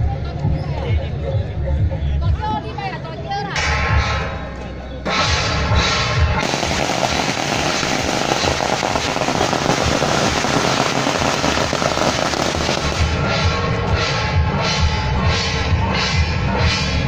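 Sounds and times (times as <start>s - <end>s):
firecrackers popping: 6.4s - 13.2s.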